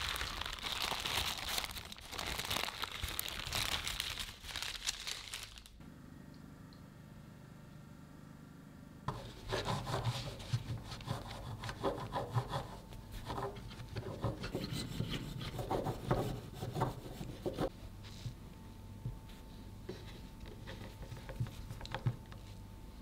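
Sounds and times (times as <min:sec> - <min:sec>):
bread knife sawing through cake: 0:09.1 - 0:13.6.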